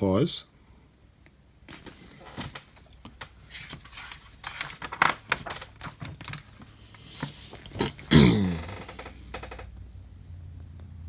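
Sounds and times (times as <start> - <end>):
magazine pages rustling: 1.7 - 8.1.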